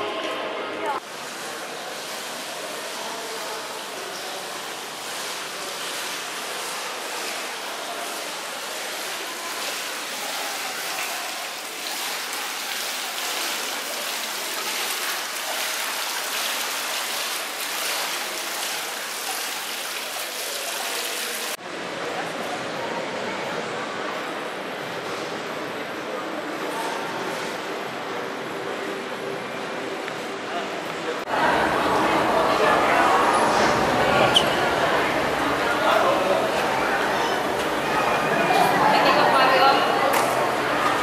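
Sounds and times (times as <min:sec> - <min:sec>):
fountain splashing into basin: 0:01.0 - 0:21.6, 0:31.3 - 0:41.0.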